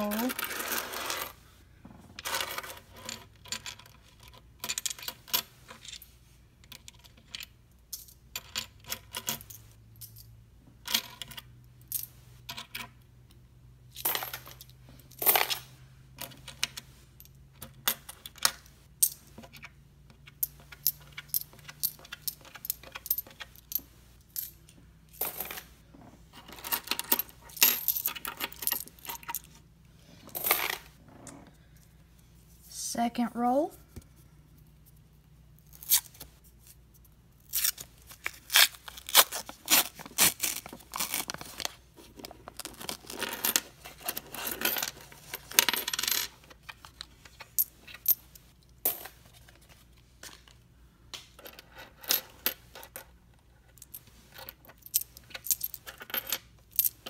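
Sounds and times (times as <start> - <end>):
coins clinking on wooden table: 0.0 - 1.4, 2.2 - 12.9, 13.9 - 25.7, 26.4 - 29.5, 30.2 - 30.9, 43.2 - 46.8, 47.5 - 49.4, 51.4 - 57.0.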